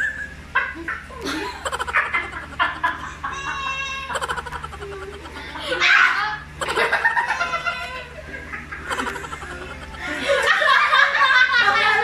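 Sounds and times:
people laughing together: 0:00.5 - 0:12.0.

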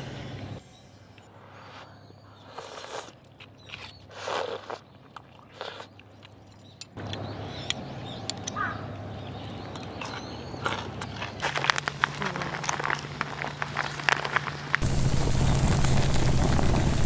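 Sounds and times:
wood fire crackling and popping: 0:11.4 - 0:17.0.

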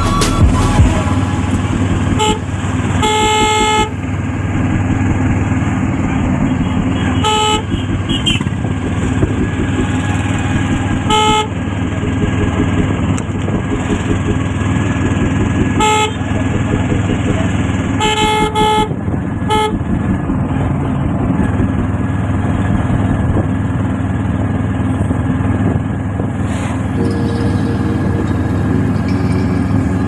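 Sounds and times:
traffic engine and road rumble: 0:00.0 - 0:30.0
vehicle horn honking: 0:00.6 - 0:04.0, 0:06.5 - 0:08.6, 0:09.7 - 0:11.8, 0:15.7 - 0:17.3, 0:17.9 - 0:19.8.

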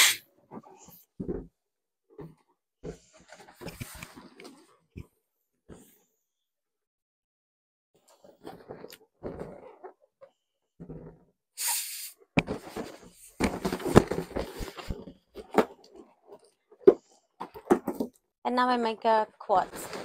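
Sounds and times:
balloons squeaking and rubbing: 0:00.0 - 0:00.2, 0:11.6 - 0:15.1
short hiss: 0:00.0 - 0:00.2, 0:11.6 - 0:12.2.

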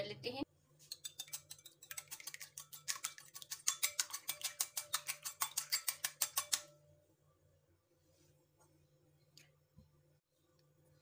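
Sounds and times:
utensil clicking against bowl: 0:00.9 - 0:06.7.

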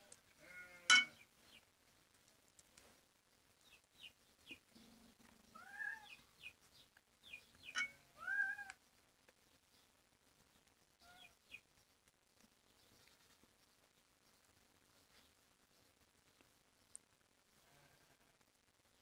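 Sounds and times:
cat meowing: 0:05.6 - 0:06.2, 0:08.1 - 0:08.8.

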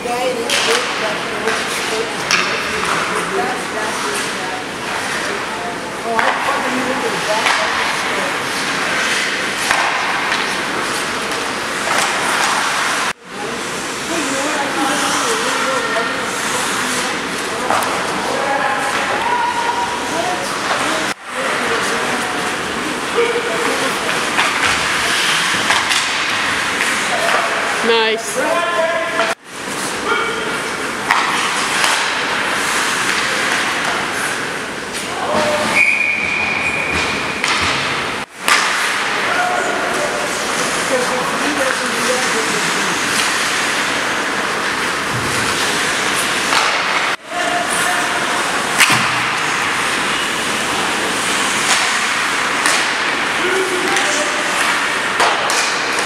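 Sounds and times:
skates on ice rink: 0:00.1 - 0:56.0
skate blades scraping on ice: 0:06.7 - 0:13.2, 0:40.0 - 0:48.6
referee's whistle: 0:35.7 - 0:37.0.

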